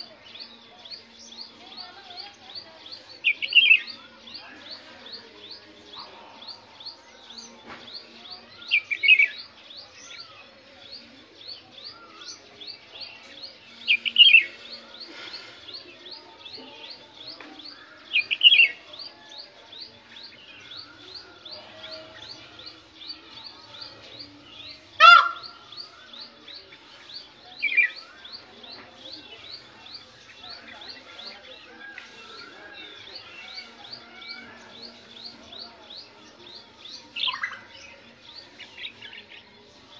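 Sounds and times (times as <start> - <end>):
loud sharp bird call: 25.0 - 25.9.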